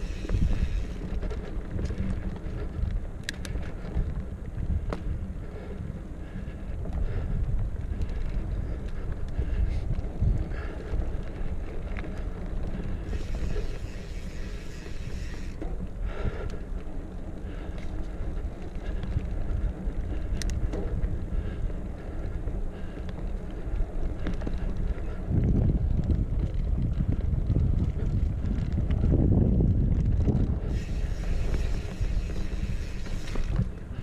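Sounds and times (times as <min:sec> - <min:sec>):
mountain bike rolling on dirt: 0:00.0 - 0:34.0
wind buffeting microphone: 0:00.0 - 0:34.0
hiss: 0:30.7 - 0:33.4.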